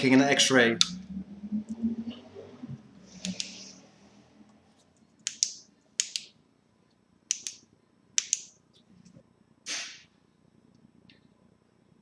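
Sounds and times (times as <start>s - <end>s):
small switch clicking: 5.2s - 6.3s, 8.2s - 8.5s.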